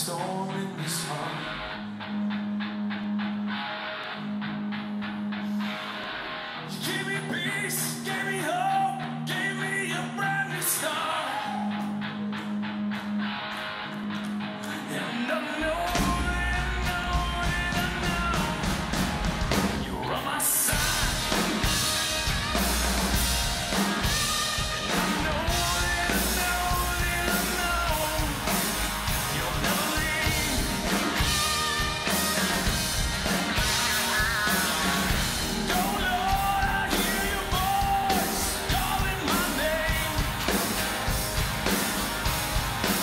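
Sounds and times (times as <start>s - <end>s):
man singing: 0.0s - 1.7s, 6.7s - 12.0s, 14.6s - 19.0s, 19.6s - 21.8s, 24.8s - 31.4s, 35.6s - 40.7s
electric bass: 15.6s - 20.0s, 20.7s - 43.0s
drums with steady beat: 15.9s - 43.0s.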